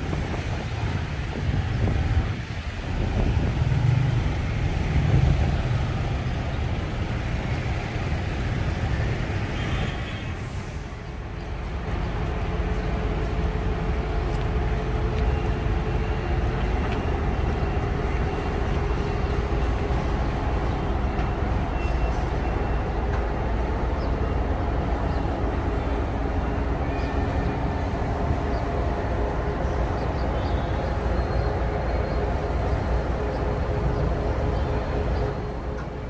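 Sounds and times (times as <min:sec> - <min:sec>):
city street traffic rumble: 0:00.0 - 0:36.0.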